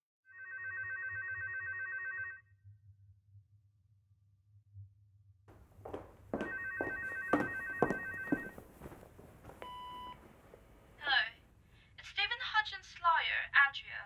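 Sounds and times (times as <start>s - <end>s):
telephone electronic ring: 0.3s - 2.4s, 6.4s - 8.6s
short steady beep: 9.6s - 10.2s.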